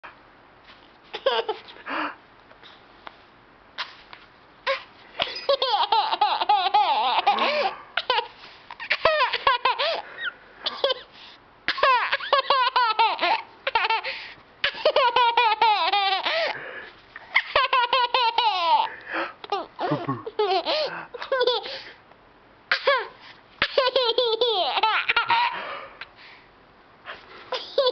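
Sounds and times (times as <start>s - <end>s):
baby giggling: 4.7s - 11.1s, 11.8s - 16.5s, 17.3s - 21.8s, 22.8s - 25.6s, 27.5s - 27.9s.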